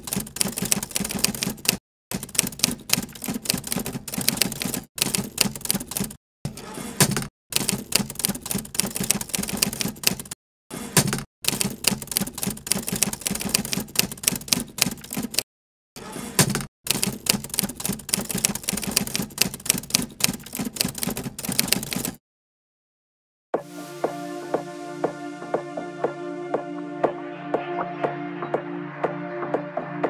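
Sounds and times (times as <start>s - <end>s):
typewriter keystroke clicks: 0.0s - 6.2s, 7.1s - 10.4s, 11.0s - 15.4s, 16.5s - 22.2s.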